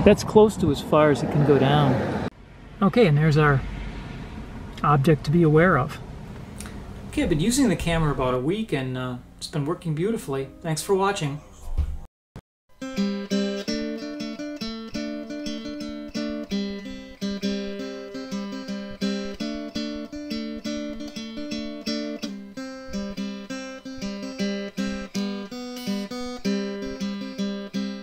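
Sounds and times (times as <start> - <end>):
acoustic guitar chords: 12.7 - 28.0.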